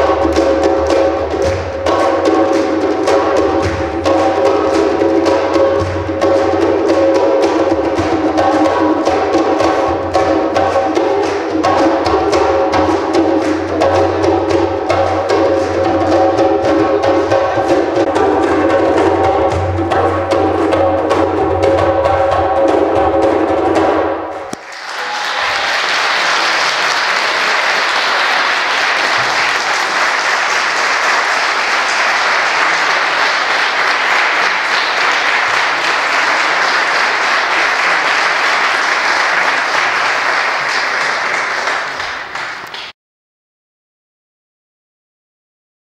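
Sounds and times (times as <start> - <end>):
drum-backed music: 0.0 - 24.5
audience applauding: 24.5 - 43.0.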